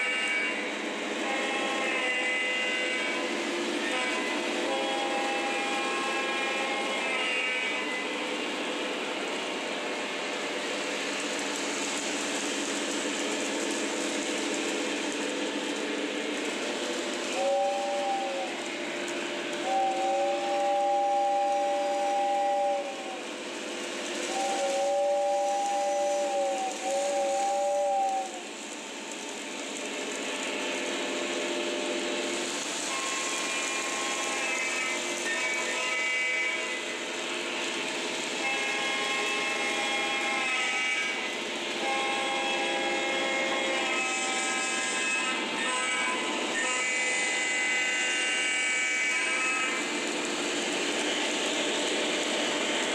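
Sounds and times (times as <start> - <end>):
two-note train horn: 0.0 - 8.1, 17.4 - 18.6, 19.6 - 23.2, 24.3 - 28.4, 32.8 - 36.9, 38.4 - 49.9.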